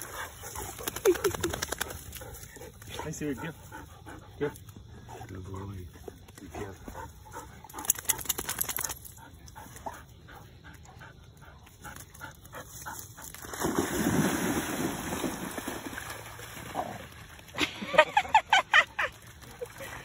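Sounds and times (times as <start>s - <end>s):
dogs splashing in water: 0.0s - 3.6s, 12.7s - 18.0s.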